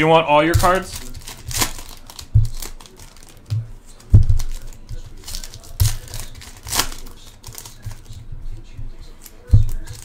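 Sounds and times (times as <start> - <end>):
foil packs tearing and crinkling: 0.6 - 8.2
dull thump: 3.5 - 4.6.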